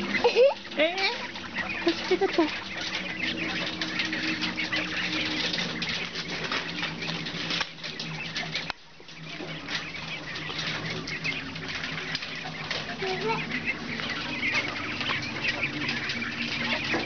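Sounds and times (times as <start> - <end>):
quail chirping: 0.0 - 17.0.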